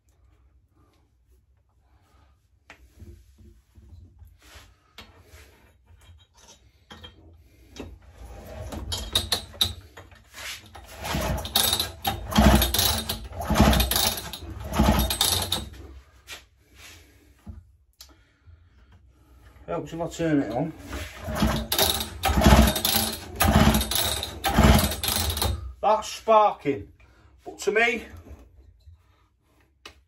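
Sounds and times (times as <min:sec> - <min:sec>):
engine cranked by pull starter: 0:10.7 - 0:15.7, 0:20.9 - 0:25.8.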